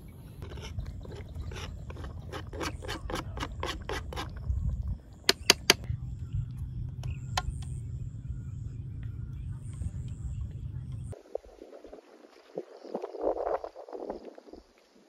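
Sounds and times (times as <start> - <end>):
low steady rumble: 0.0 - 11.6
knife scraping cutting board: 0.4 - 4.4, 5.3 - 5.8.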